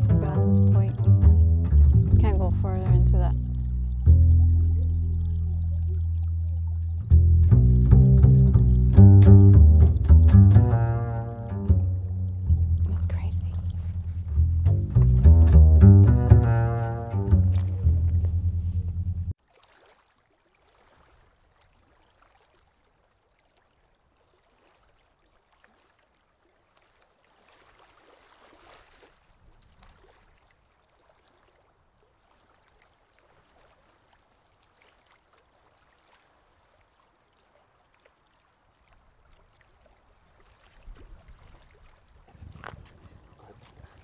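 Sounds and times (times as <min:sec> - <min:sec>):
bowed double bass and cello music: 0:00.0 - 0:19.4
faint trickle of water: 0:00.0 - 0:44.0.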